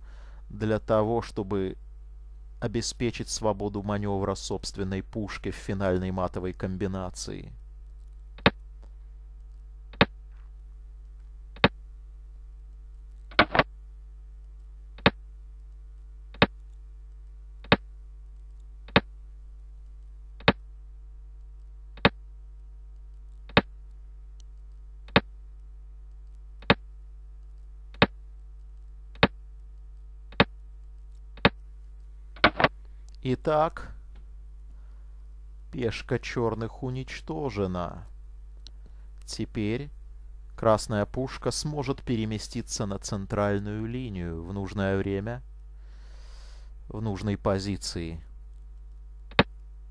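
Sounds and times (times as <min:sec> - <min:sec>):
low electrical hum: 0:00.0 - 0:49.9
sharp computer clicks: 0:08.0 - 0:08.7, 0:09.5 - 0:10.2, 0:11.5 - 0:11.8, 0:13.2 - 0:13.7, 0:15.0 - 0:19.1, 0:20.4 - 0:20.6, 0:21.9 - 0:22.2, 0:22.9 - 0:23.7, 0:24.4 - 0:25.3, 0:26.2 - 0:29.4, 0:30.3 - 0:31.7, 0:32.4 - 0:33.2, 0:49.3 - 0:49.7.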